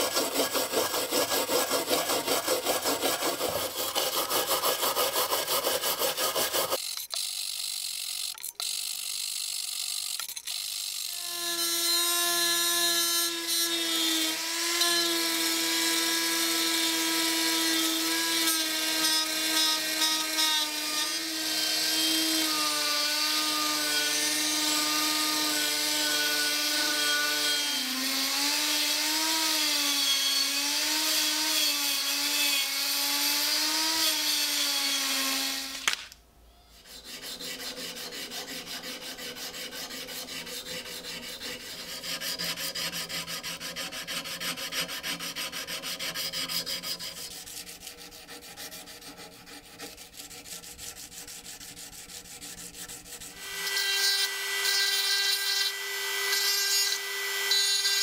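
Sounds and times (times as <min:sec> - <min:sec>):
rotary tool high whine: 0:05.9 - 0:15.5, 0:53.2 - 0:58.0.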